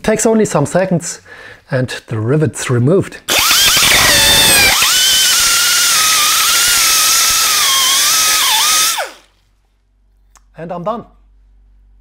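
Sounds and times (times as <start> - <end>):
die grinder whine: 3.3 - 9.3.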